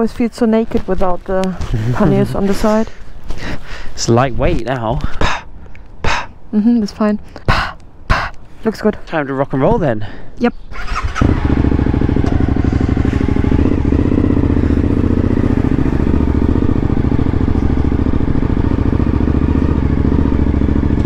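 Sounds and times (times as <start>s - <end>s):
motorcycle engine running: 10.8s - 21.0s.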